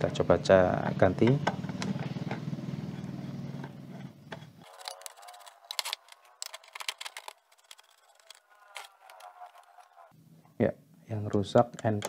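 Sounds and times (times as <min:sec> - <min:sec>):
screwdriver clicking and scraping metal: 0:03.6 - 0:10.1.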